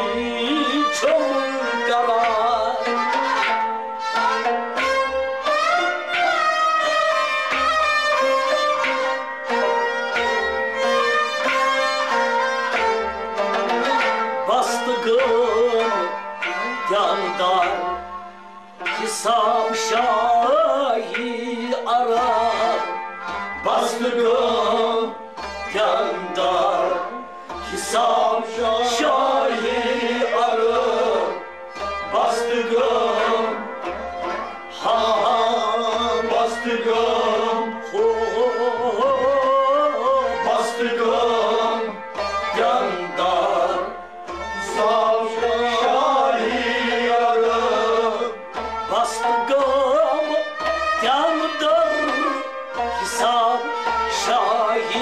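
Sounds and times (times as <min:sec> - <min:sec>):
man singing: 0:00.0 - 0:03.5, 0:13.9 - 0:18.0, 0:18.8 - 0:31.5, 0:32.1 - 0:55.0
bowed sarangi: 0:00.0 - 0:55.0
harmonium chords: 0:00.0 - 0:55.0
plucked rabab: 0:00.0 - 0:55.0.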